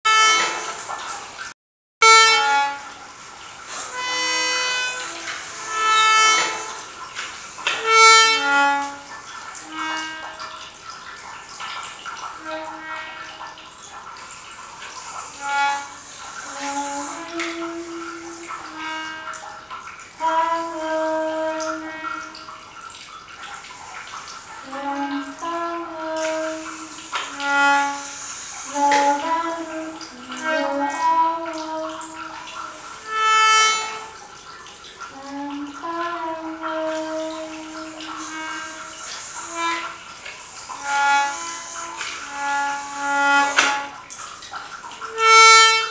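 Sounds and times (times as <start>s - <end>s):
faint water trickling: 0.1s - 45.9s.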